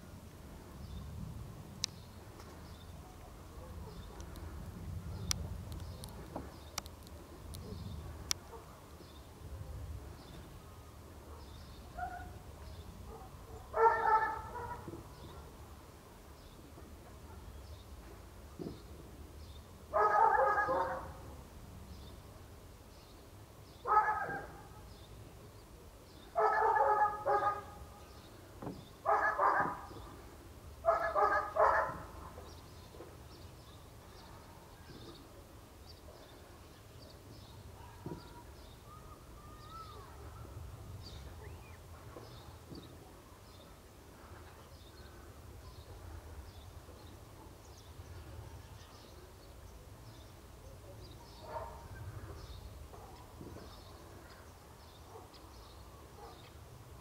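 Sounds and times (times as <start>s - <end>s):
dog barking: 3.0s - 4.3s, 11.3s - 12.4s, 13.1s - 14.9s, 19.9s - 21.2s, 23.9s - 24.7s, 26.4s - 27.8s, 29.0s - 29.9s, 30.8s - 32.4s, 37.8s - 38.4s, 51.2s - 52.0s, 55.1s - 55.4s, 56.2s - 56.5s.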